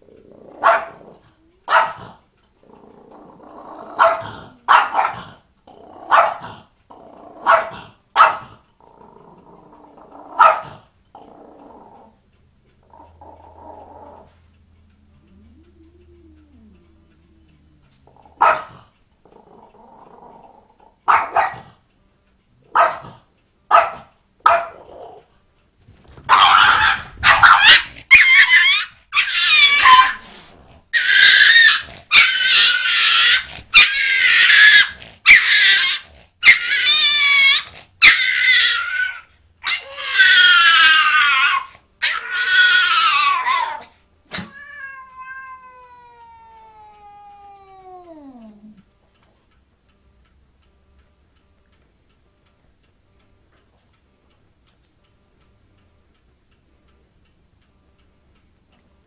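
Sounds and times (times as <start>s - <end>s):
cat and dog yowling and growling: 0.0s - 12.2s, 15.2s - 21.7s, 26.2s - 49.3s.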